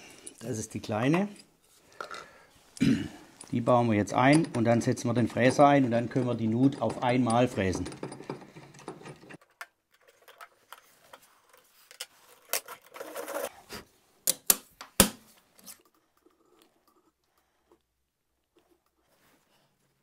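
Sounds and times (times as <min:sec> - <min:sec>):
small metal clicks and rattles: 0:04.2 - 0:13.3.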